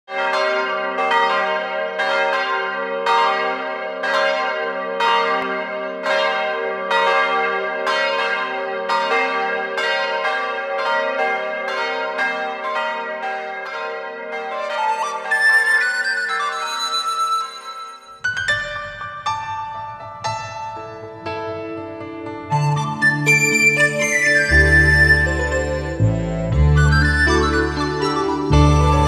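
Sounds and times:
church bells ringing: 0.1s - 19.5s.

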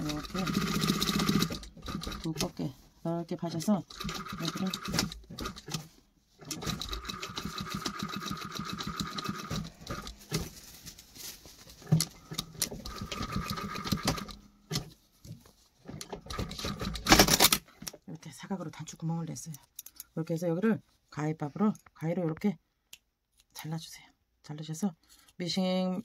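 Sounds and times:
sewing machine stitching fast: 0.0s - 2.5s, 3.9s - 10.1s, 12.4s - 14.4s, 16.3s - 17.5s.

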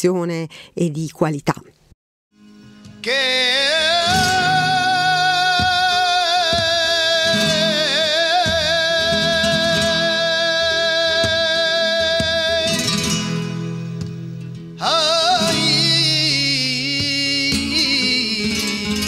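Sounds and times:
flamenco guitar chords: 2.3s - 19.0s
man singing flamenco lament: 3.0s - 13.9s, 14.8s - 19.0s.

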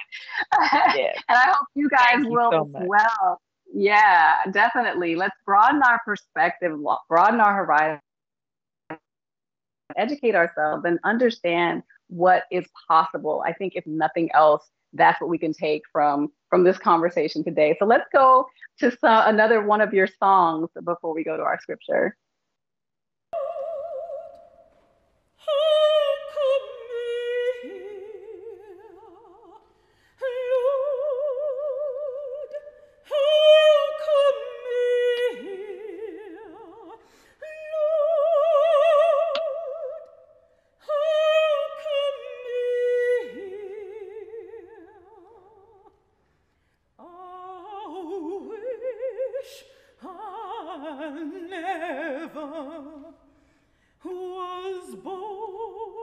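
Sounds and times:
operatic soprano singing: 1.2s - 3.2s, 23.4s - 24.5s, 25.4s - 45.9s, 47.0s - 53.2s, 54.0s - 56.0s.

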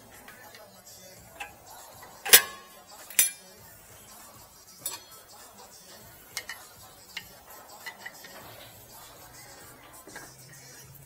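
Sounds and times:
metal clanks from brake caliper: 2.3s - 3.4s.

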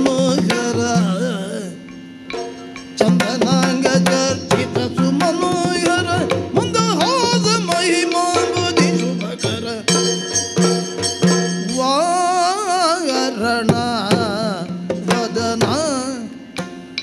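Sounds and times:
drum strokes: 0.0s - 17.0s
steady drone: 0.0s - 17.0s
small hand cymbals: 1.7s - 4.6s, 5.7s - 12.7s
person singing: 3.0s - 10.2s, 11.7s - 16.4s.

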